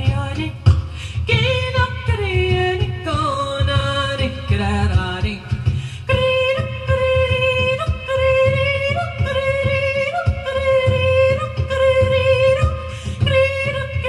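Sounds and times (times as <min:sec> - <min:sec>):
hand drum strokes: 0:00.0 - 0:14.0
woman singing wordless notes: 0:01.2 - 0:14.0.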